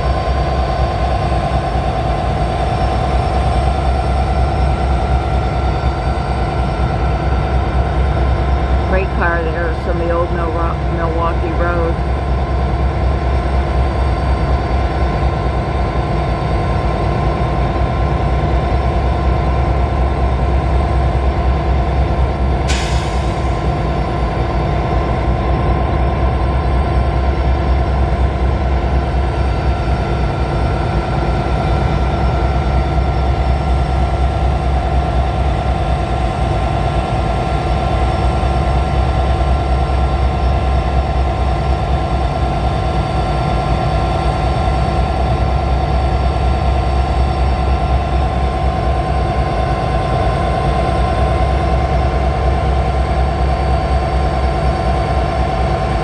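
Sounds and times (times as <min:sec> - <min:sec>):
diesel locomotives idling: 0:00.0 - 0:56.0.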